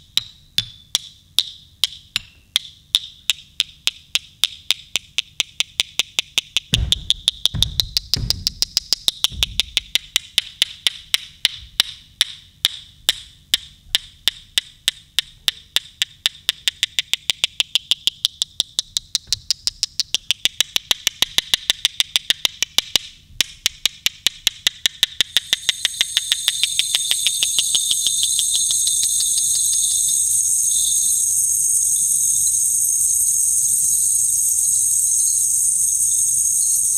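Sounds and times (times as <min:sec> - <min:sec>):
fast clicking wood block beat: 0:00.0 - 0:30.4
low drum strikes: 0:06.7 - 0:10.0
high sustained tone: 0:25.6 - 0:36.9.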